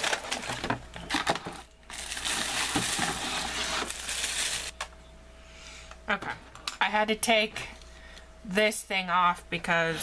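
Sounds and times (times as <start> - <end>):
packaging clicks and knocks: 0.0 - 4.9
plastic wrapping crinkling: 0.0 - 4.9.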